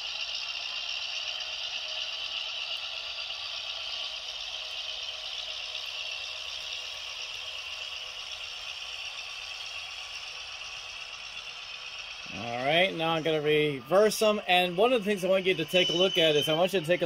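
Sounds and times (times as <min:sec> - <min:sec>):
rattly diesel engine drone: 0:00.0 - 0:17.0.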